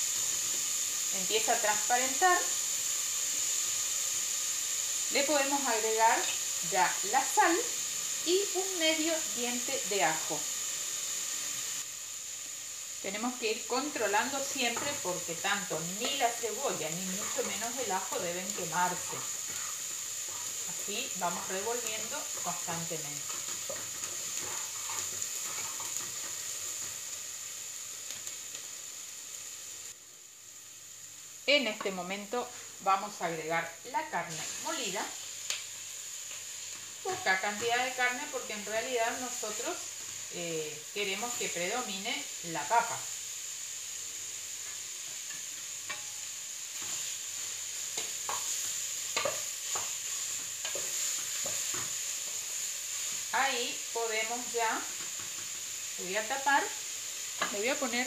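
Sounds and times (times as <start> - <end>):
onion sizzling in hot oil: 0.0 - 58.0
wooden spoon scraping pot: 23.2 - 26.4.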